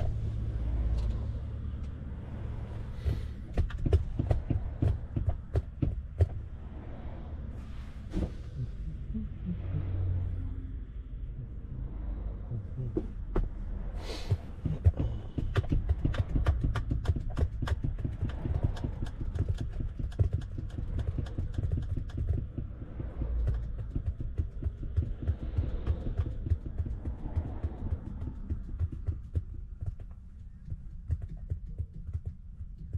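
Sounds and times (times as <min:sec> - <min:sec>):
truck engine and road rumble: 0:00.0 - 0:32.9
sharp clicks and rattles: 0:14.6 - 0:32.9.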